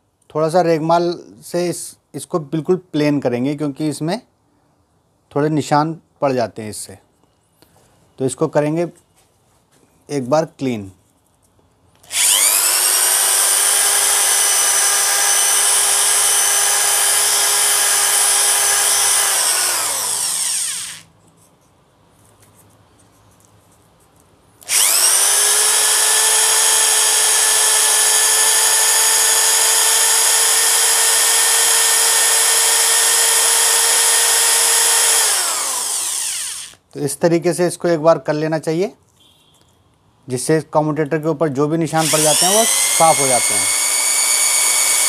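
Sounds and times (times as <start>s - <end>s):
electric drill whine: 12.0s - 21.1s, 24.6s - 36.8s, 42.0s - 45.0s.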